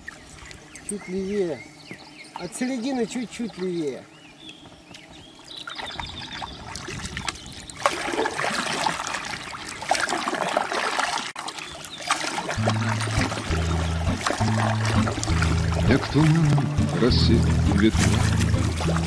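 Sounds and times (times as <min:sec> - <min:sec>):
river water gurgling and splashing: 0:05.2 - 0:19.0
music: 0:12.6 - 0:19.0.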